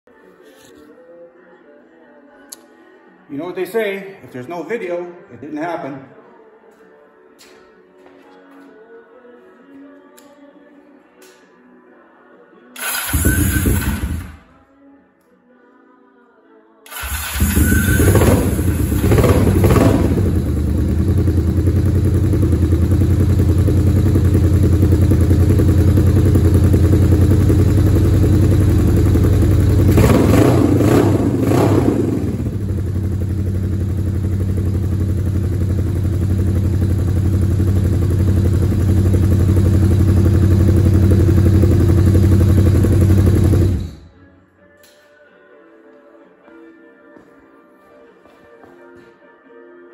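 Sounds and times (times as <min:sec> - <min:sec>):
motorcycle engine revving and idling: 0:12.8 - 0:14.4, 0:16.9 - 0:44.1.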